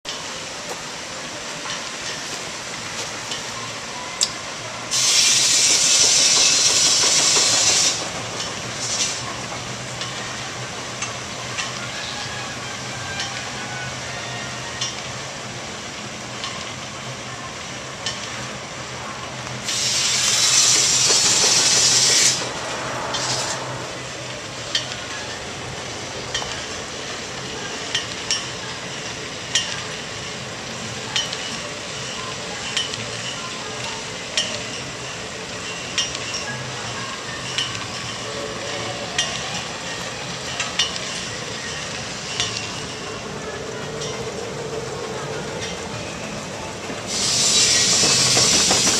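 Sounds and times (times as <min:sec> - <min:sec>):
steam engine hissing: 0:00.2 - 0:48.9.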